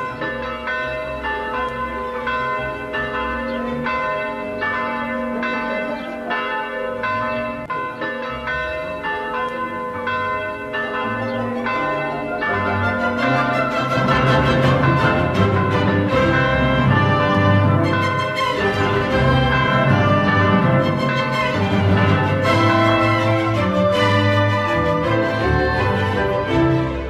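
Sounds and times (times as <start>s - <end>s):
church bells ringing: 0.0s - 27.0s.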